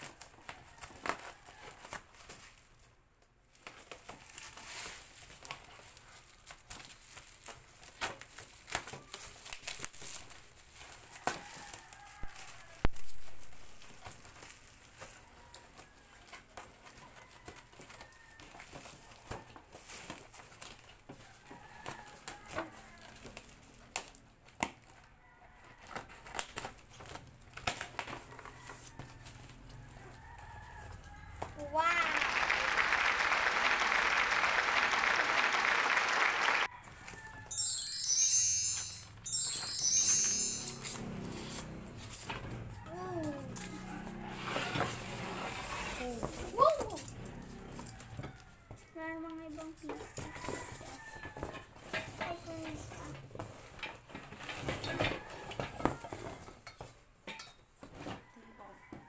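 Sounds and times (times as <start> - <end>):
plastic wrapping crinkling and tearing: 0.0 - 25.0, 26.1 - 28.3.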